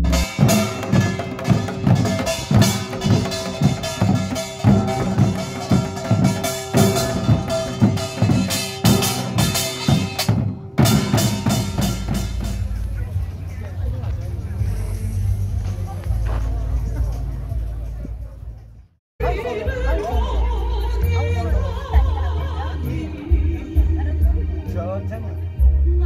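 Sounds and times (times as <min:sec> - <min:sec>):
small brass gongs clanging: 0:00.0 - 0:12.7
barrel drums beating: 0:00.0 - 0:13.8
hourglass drums beating: 0:00.0 - 0:15.7
percussion band playing: 0:00.0 - 0:18.5.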